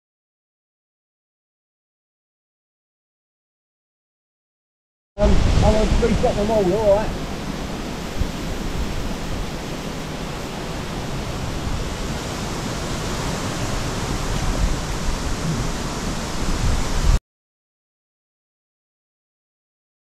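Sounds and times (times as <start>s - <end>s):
steady outdoor rushing noise: 5.2s - 17.2s
low uneven rumble: 14.0s - 16.3s.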